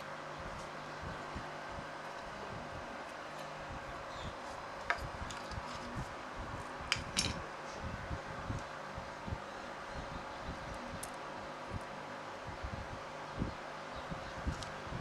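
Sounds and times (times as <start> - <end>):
small metal parts clinking: 6.9 - 7.4.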